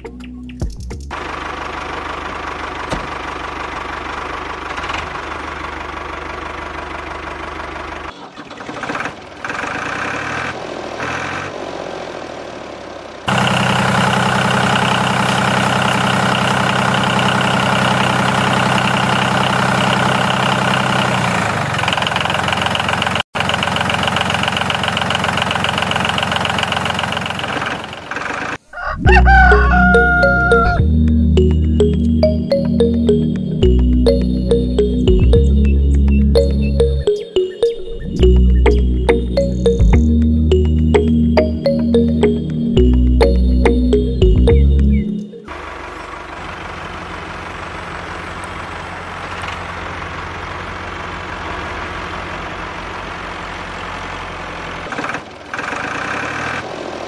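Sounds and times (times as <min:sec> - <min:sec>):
background music: 0:00.0 - 0:01.2, 0:29.1 - 0:45.5
tractor engine running: 0:00.0 - 0:57.0
roosters crowing: 0:28.7 - 0:30.8.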